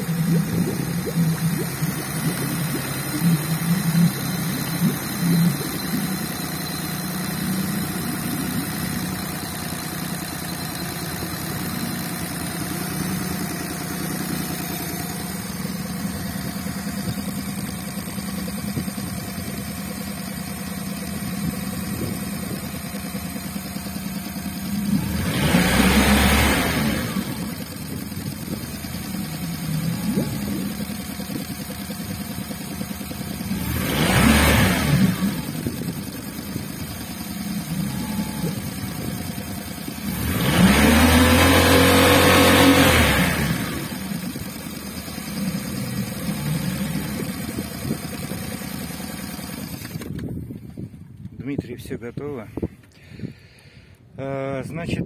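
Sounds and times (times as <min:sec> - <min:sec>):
outboard motor revving: 0:00.0 - 0:50.9.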